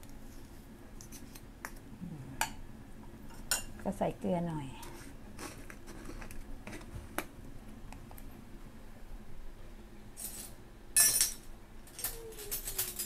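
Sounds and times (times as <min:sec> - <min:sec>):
kitchen utensils clicking: 0:11.0 - 0:13.0.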